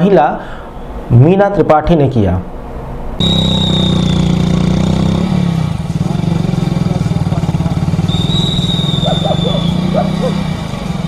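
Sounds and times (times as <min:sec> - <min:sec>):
motorcycle engine running: 0:03.2 - 0:11.0.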